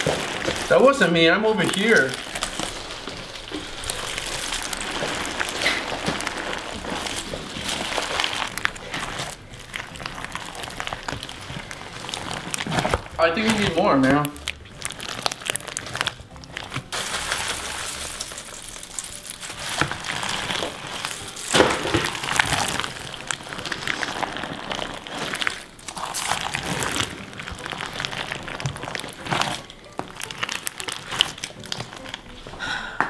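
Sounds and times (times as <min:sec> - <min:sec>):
slime squishing and crunching: 0:00.0 - 0:32.6.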